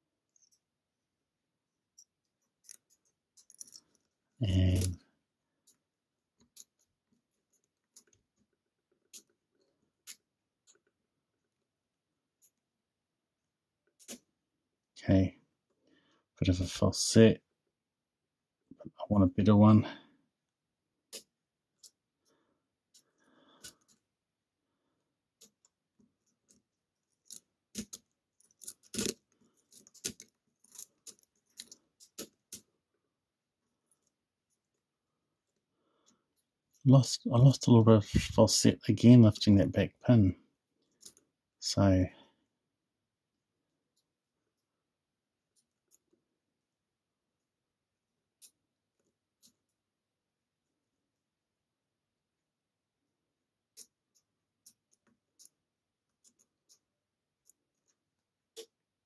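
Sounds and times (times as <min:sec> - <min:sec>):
lock pick clicking and scraping: 0:02.0 - 0:04.1, 0:26.3 - 0:32.7.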